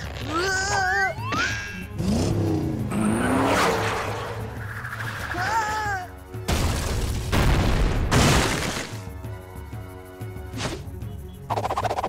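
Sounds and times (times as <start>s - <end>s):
cartoon action music: 0.2s - 8.9s
booming explosions: 6.5s - 8.9s.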